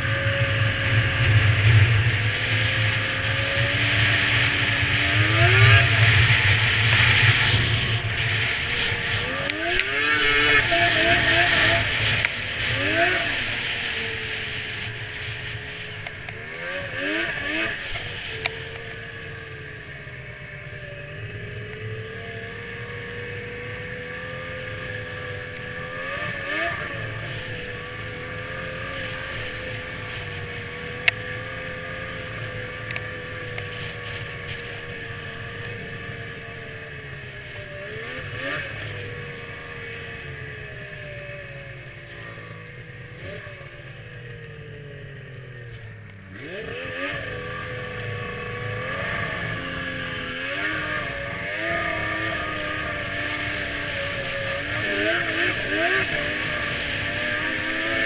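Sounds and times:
snowmobile engine running: 0.0s - 58.0s.

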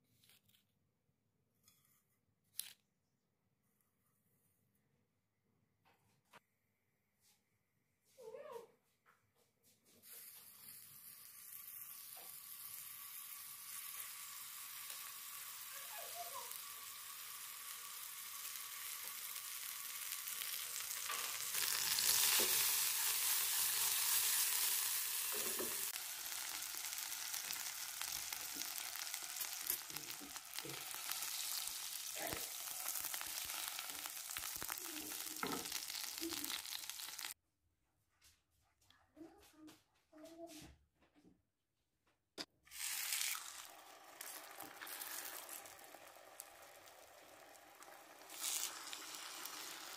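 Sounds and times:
butter and sugar sizzling in a pan: 10.0s - 37.4s, 42.7s - 49.9s.

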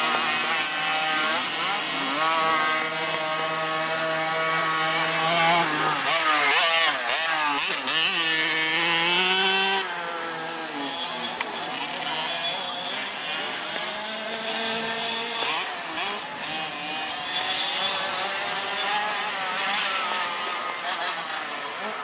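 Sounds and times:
motocross bike engines revving: 0.0s - 22.0s.

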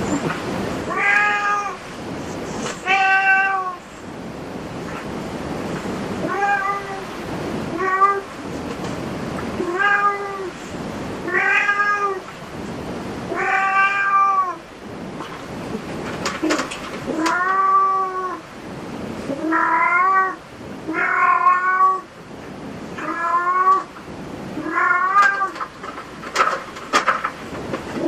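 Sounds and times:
cat meowing: 0.9s - 1.8s, 2.8s - 3.8s, 6.2s - 7.1s, 9.6s - 10.5s, 11.2s - 12.2s, 13.3s - 14.6s, 17.1s - 18.4s, 19.4s - 22.1s, 23.0s - 23.9s, 24.6s - 25.6s.

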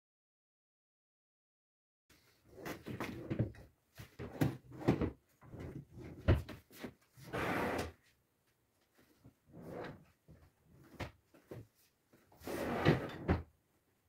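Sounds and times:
furniture knocks and clunks: 2.6s - 6.9s.

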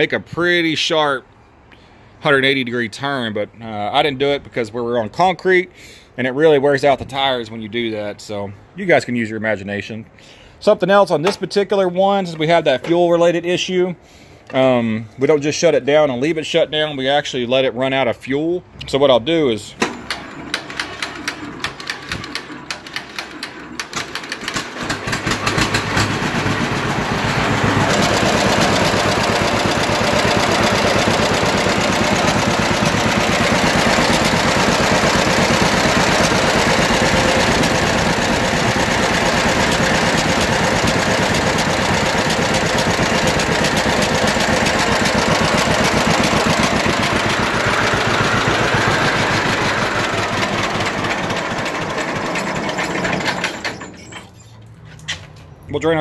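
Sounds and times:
two-cylinder engine running: 19.8s - 53.9s.

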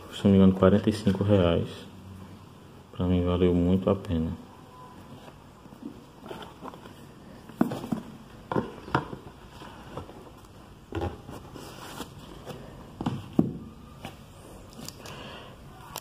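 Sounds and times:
books rubbing and rustling: 5.1s - 8.3s, 9.3s - 13.0s
books knocking together: 7.4s - 10.3s, 13.0s - 13.7s.

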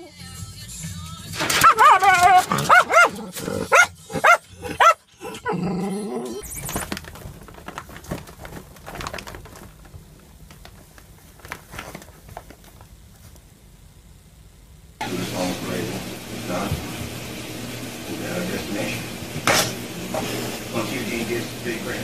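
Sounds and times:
dog barking and whining: 1.4s - 6.4s
faint rustles and taps: 6.7s - 13.5s.

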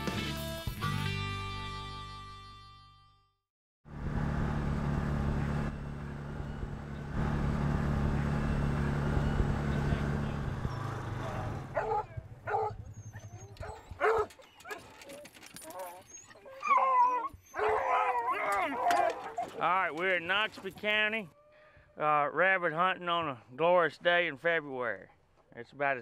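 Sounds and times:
background music: 0.0s - 3.2s
vehicle engines running: 3.9s - 16.2s, 17.6s - 21.3s
dog barking: 11.4s - 14.9s, 17.5s - 19.6s.

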